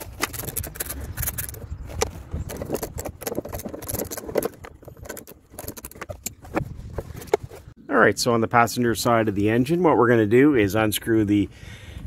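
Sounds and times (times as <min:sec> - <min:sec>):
metal tools rattling: 0:00.0 - 0:07.4.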